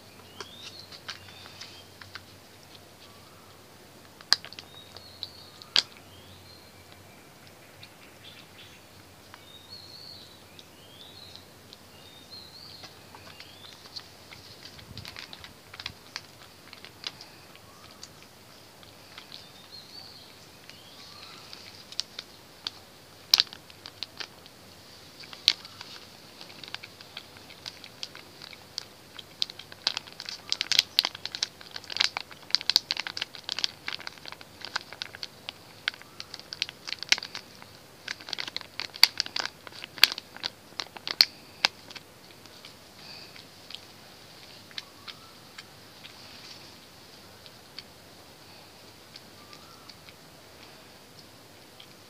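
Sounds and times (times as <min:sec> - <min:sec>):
faint bird chirps: 0:00.0 - 0:03.7, 0:04.4 - 0:22.8, 0:35.7 - 0:38.4, 0:43.0 - 0:47.4, 0:48.3 - 0:52.0
cat chewing and lapping food: 0:12.7 - 0:52.0.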